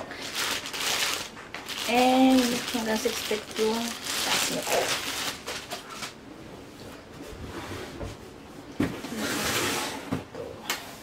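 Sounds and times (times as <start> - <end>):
plastic bag rustling: 0.0 - 6.2.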